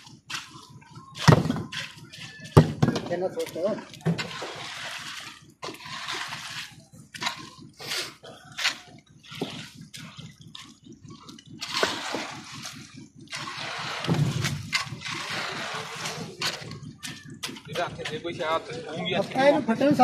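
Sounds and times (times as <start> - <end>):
scraper spreading wet concrete: 0.0 - 20.0
low rumble: 9.2 - 20.0.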